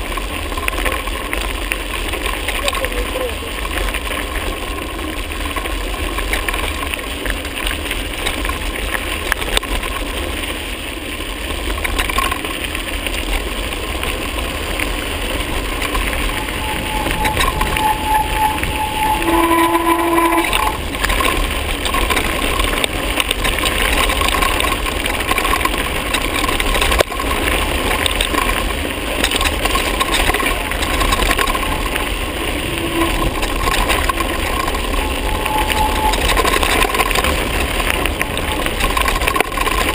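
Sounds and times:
tyres rolling on gravel: 0.0 - 39.9
wind buffeting microphone: 14.7 - 39.9
whistle-like tone: 15.8 - 21.3, 31.0 - 37.4.

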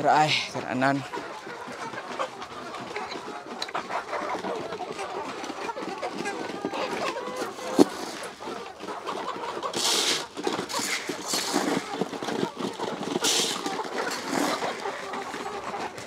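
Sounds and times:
chickens pecking and scratching: 0.0 - 16.0
feed pouring from bucket: 4.9 - 16.0.

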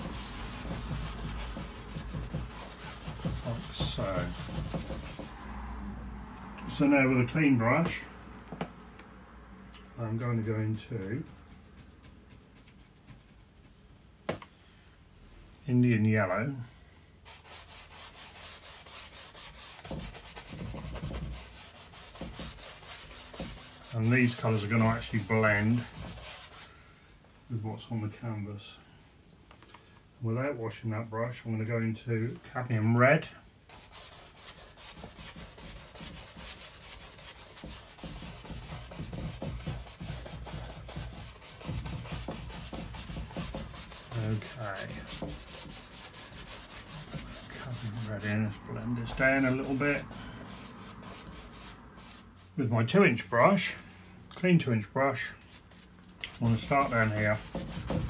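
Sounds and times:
bristle brush scrubbing canvas: 0.0 - 5.5, 10.1 - 14.2, 17.2 - 26.7, 33.7 - 54.0, 55.2 - 58.0.

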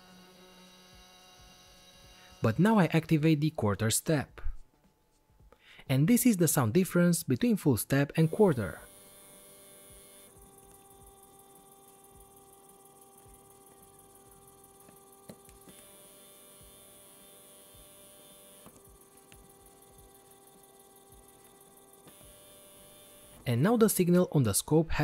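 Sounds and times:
stepper motor humming: 0.0 - 2.6, 8.2 - 23.8.

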